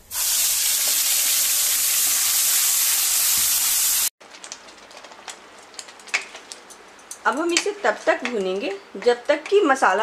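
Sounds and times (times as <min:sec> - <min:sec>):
paste sizzling in hot oil: 0:00.0 - 0:04.1.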